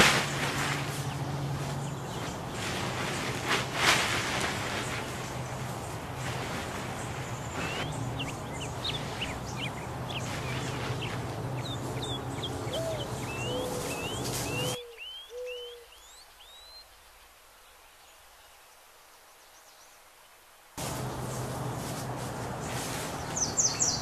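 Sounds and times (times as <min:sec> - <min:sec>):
birds chirping: 0:00.1 - 0:17.2, 0:20.8 - 0:24.0
low hooting calls: 0:07.5 - 0:16.0
steady background hum: 0:20.8 - 0:24.0.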